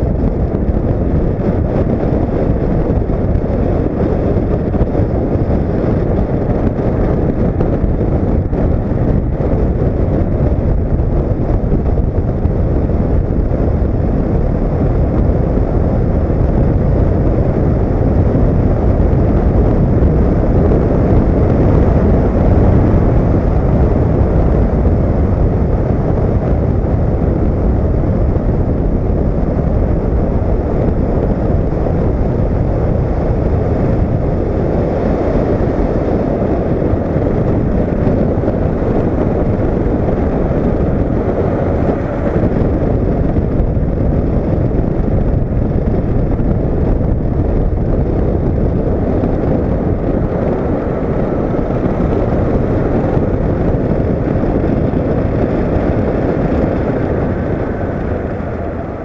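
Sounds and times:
motorcycle engine running: 0:00.0 - 0:59.0
wind rush and road noise: 0:00.0 - 0:59.0.

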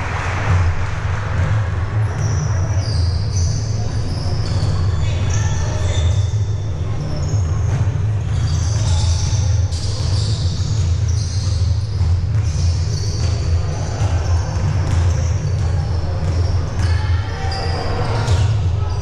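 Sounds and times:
sneakers squeaking: 0:01.4 - 0:19.0
basketball bouncing: 0:07.2 - 0:18.7.

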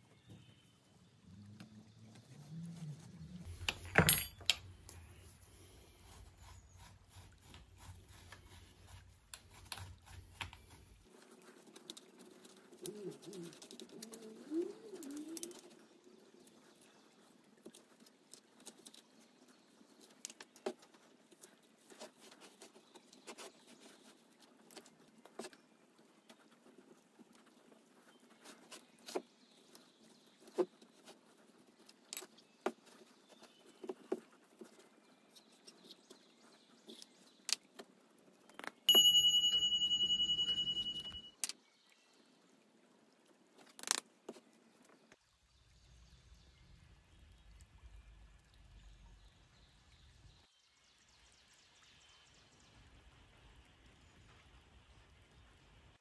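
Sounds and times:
sand and metal taps and scrapes: 0:03.4 - 0:12.7.

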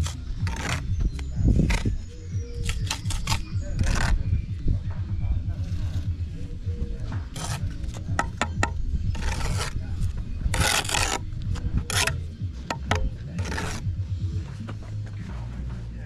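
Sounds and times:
trowel scraping mortar: 0:00.0 - 0:04.4, 0:07.2 - 0:13.9
trowel clicking against brick: 0:11.9 - 0:13.8.

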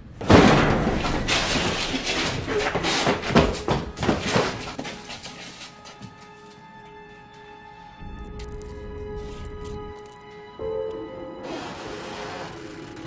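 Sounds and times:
knocks bangs and scraping: 0:00.0 - 0:06.3
soft sustained music notes: 0:05.0 - 0:13.0.

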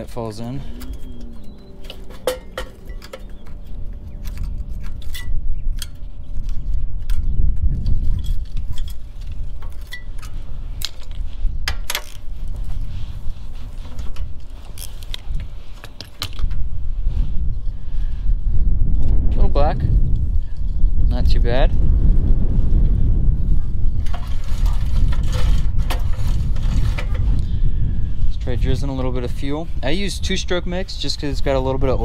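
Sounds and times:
low rumble: 0:00.0 - 0:15.8.

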